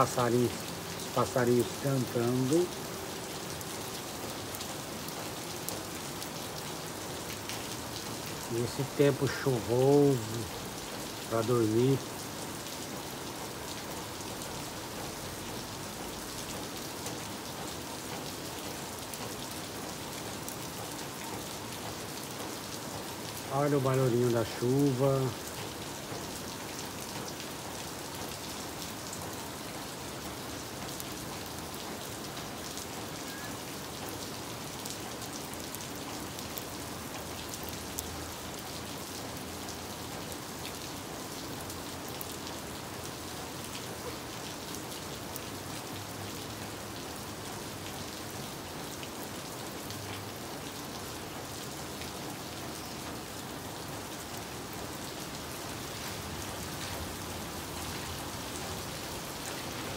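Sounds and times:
steady rain on roofs: 0.0s - 59.9s
rain drop ticks: 3.9s - 42.6s.

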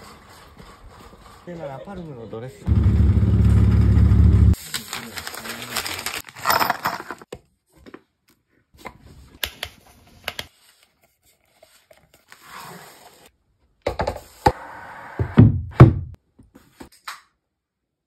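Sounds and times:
plastic packaging rustling: 4.6s - 7.2s.

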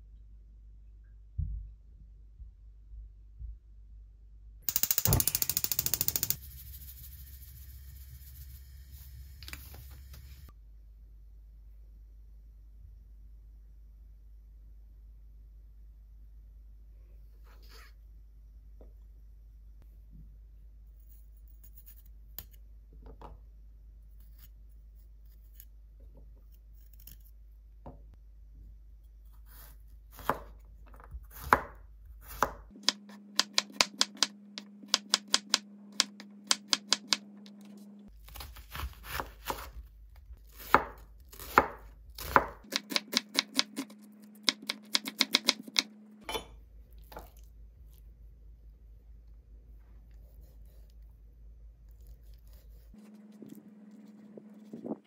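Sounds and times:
knife chopping on wooden board: 31.3s - 37.2s, 38.3s - 39.8s, 40.6s - 45.9s.

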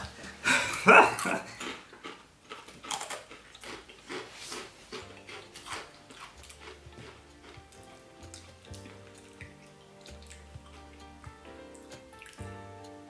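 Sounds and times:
tortilla chips crunching: 0.6s - 11.1s
soft background music: 4.6s - 13.0s.

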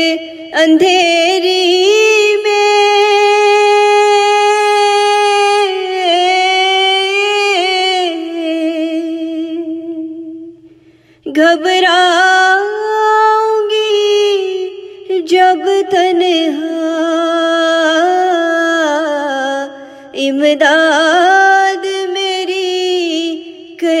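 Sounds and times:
woman singing: 0.0s - 24.0s.

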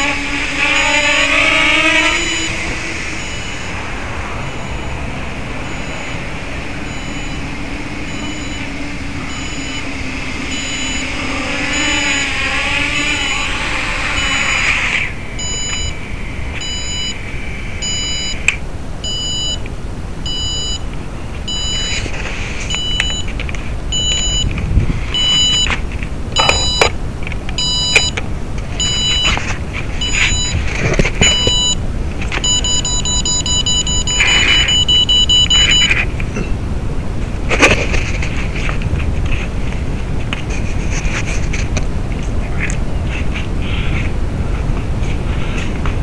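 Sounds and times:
drone motors whining: 0.0s - 40.3s
electronic beep: 0.1s - 14.8s, 15.4s - 17.2s, 17.8s - 22.1s, 22.7s - 23.3s, 23.9s - 24.5s, 25.1s - 25.8s, 26.4s - 26.9s, 27.6s - 28.2s, 28.8s - 29.4s, 30.0s - 31.8s, 32.4s - 36.5s.

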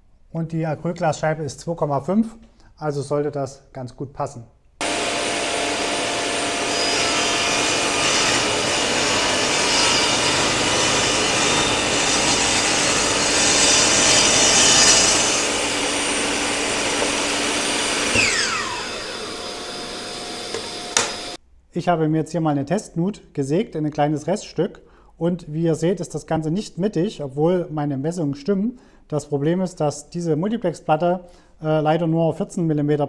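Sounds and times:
power saw cutting plywood: 4.8s - 21.4s
saw winding down whine: 4.8s - 21.4s.

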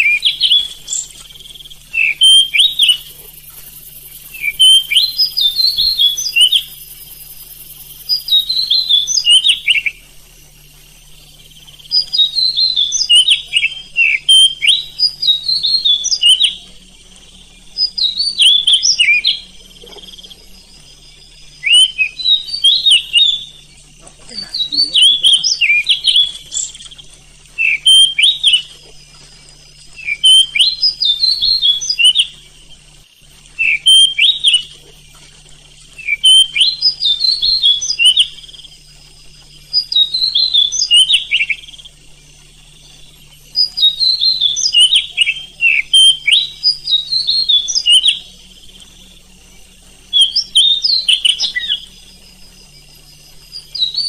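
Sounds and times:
songbird whistling and chattering: 0.0s - 10.0s, 11.7s - 16.7s, 17.6s - 20.4s, 21.5s - 28.8s, 29.9s - 32.4s, 33.6s - 34.8s, 35.9s - 38.6s, 39.7s - 41.9s, 43.0s - 48.8s, 50.1s - 52.1s, 53.4s - 54.0s
faint low hum: 0.0s - 54.0s.

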